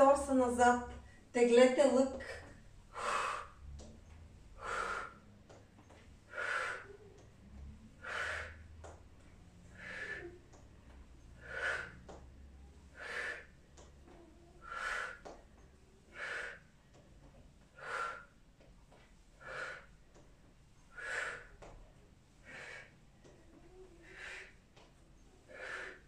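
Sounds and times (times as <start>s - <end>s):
woman breathing out hard: 2.4s - 3.6s, 4.6s - 5.2s, 6.3s - 6.9s, 9.8s - 10.3s, 16.1s - 16.6s, 20.9s - 21.5s, 22.4s - 23.0s, 24.0s - 24.6s, 25.5s - 26.0s.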